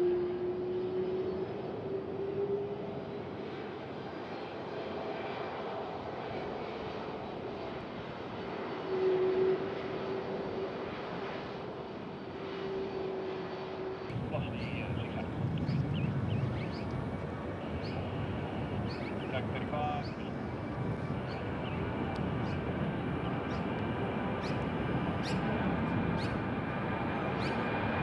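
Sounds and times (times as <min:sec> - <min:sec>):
jet engines rushing: 0:09.6 - 0:28.0.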